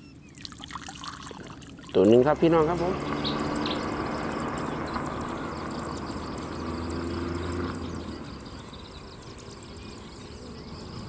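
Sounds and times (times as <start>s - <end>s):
distant engine humming: 0.0s - 11.0s.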